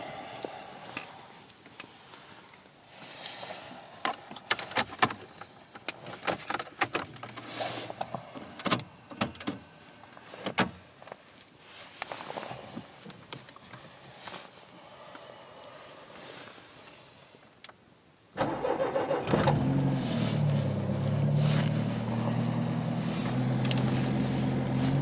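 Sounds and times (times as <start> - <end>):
sharp clicks and knocks in car cabin: 8.6 - 9.6.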